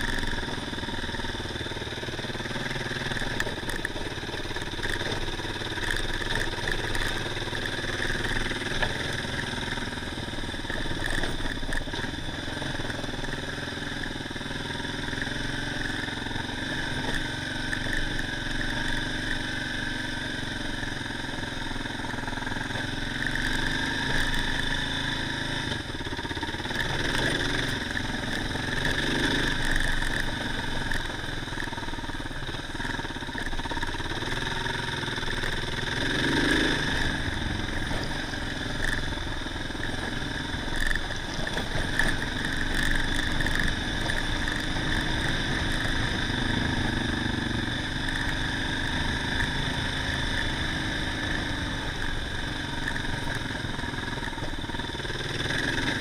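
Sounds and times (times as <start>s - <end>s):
motorcycle engine running: 0.0s - 56.0s
tyres on gravel: 35.4s - 48.4s.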